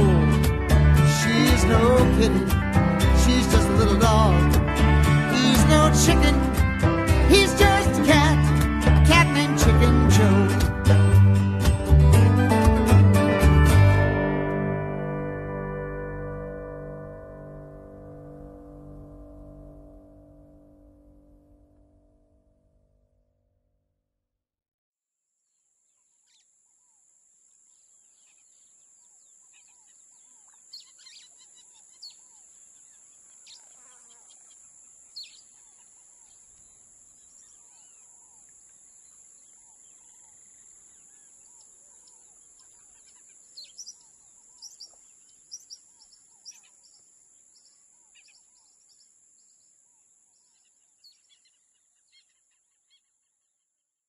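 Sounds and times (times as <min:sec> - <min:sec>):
birds chirping: 0:25.9 - 0:53.3.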